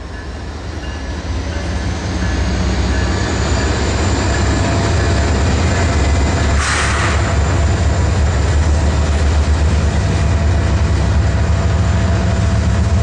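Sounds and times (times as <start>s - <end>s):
train wheels rumbling on rail: 0.0s - 13.0s.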